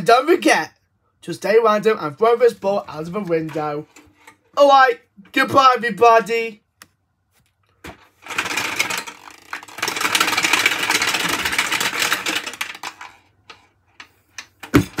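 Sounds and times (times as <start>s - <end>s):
small ball rattling in plastic maze: 7.9s - 15.0s.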